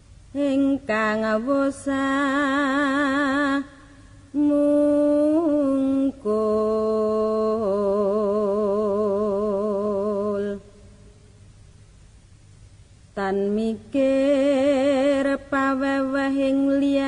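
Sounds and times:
person chanting a slow song: 0.0s - 11.4s, 13.1s - 17.0s.

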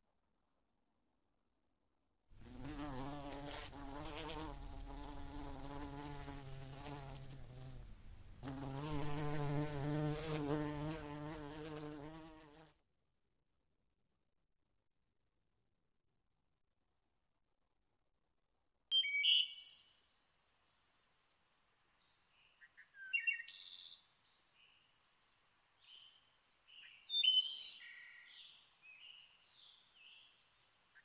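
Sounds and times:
flying insect buzzing: 2.4s - 12.8s.

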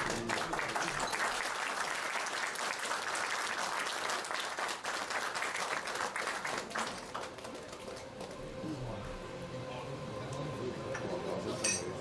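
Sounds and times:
crowd applauding: 0.0s - 8.6s.

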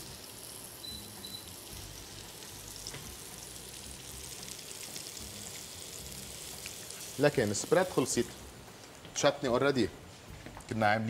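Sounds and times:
mushrooms sizzling in a frying pan: 0.0s - 8.7s.

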